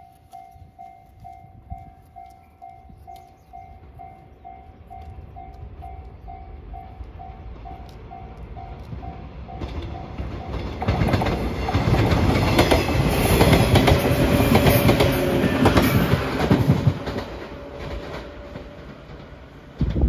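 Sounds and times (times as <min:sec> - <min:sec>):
electric train passing: 0:00.0 - 0:20.0
train wheels clacking over rail joints: 0:09.5 - 0:20.0.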